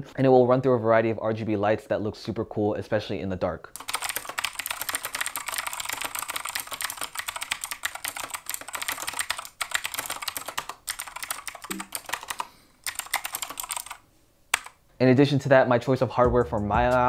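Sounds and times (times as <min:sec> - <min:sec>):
mechanical keyboard typing: 0:03.8 - 0:14.8.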